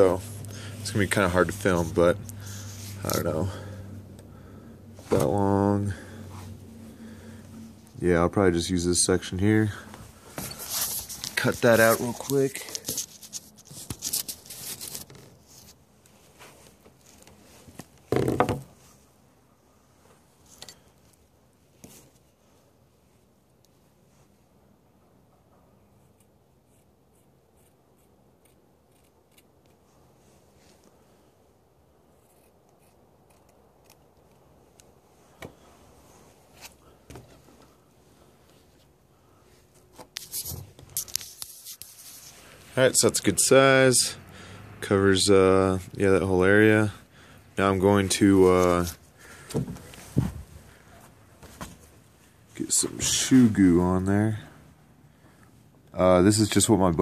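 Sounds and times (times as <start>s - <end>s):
cloth handling noise: 9.9s - 18.0s.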